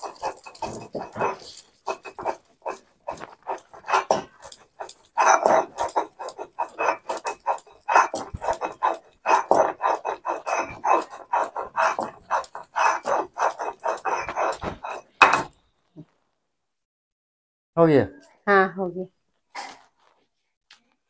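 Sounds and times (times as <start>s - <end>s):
stone roller grinding on stone slab: 0.0s - 15.6s.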